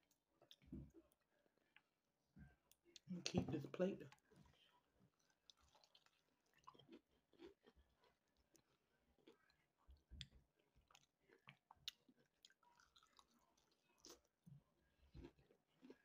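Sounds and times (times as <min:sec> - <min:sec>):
chewing fried chicken: 0:04.1 - 0:16.0.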